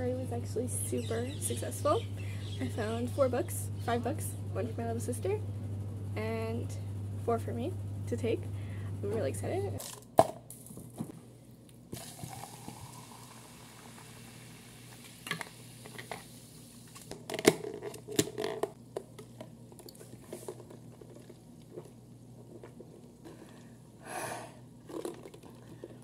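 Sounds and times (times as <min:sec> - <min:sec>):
liquid pouring into plastic cup: 0:12.0 - 0:15.2, 0:24.8 - 0:26.0.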